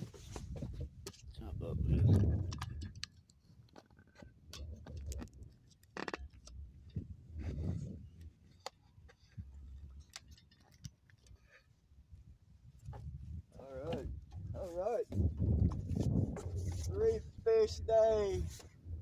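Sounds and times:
low rumbles on microphone: 0.4s - 2.9s, 6.9s - 8.2s, 12.8s - 19.0s.

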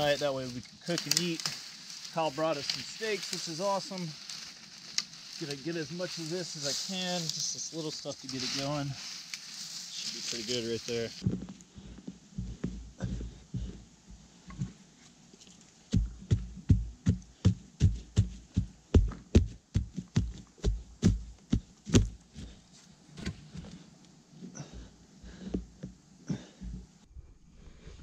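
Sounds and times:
hand scooping loose dirt: 0.0s - 11.3s.

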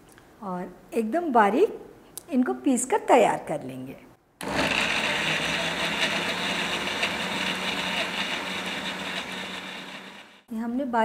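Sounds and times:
mixer grinder motor running: 4.4s - 10.5s.

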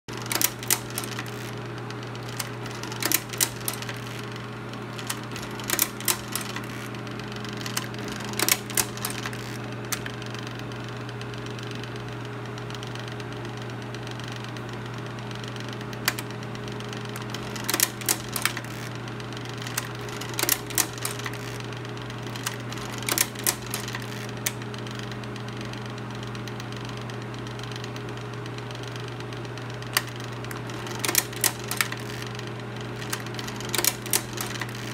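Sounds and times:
slide mechanism clicking: 0.1s - 10.5s, 15.9s - 24.8s, 29.8s - 34.9s
projector motor hum: 0.1s - 34.9s.

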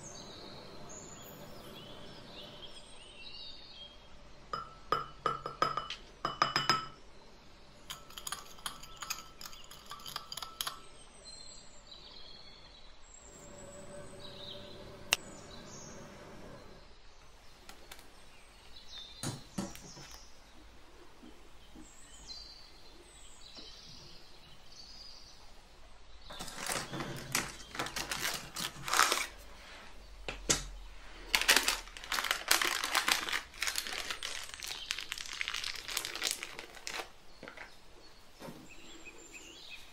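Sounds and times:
spoon clinking against glass bowl: 4.6s - 7.0s, 7.9s - 10.9s
handling of cake tin: 26.3s - 29.4s
baking paper crinkling: 26.3s - 29.7s, 31.2s - 37.7s.

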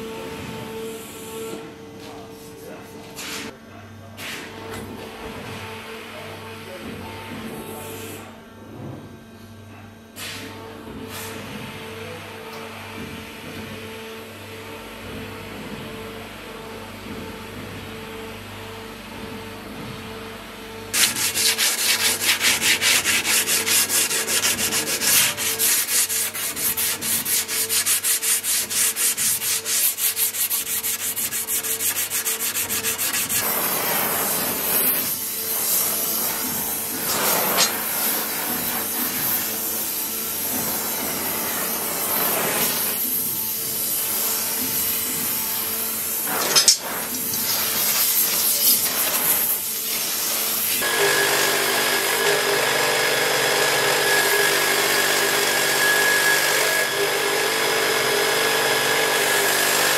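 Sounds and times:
steady hum: 20.8s - 34.6s
rhythmic rubbing strokes: 21.0s - 36.4s.

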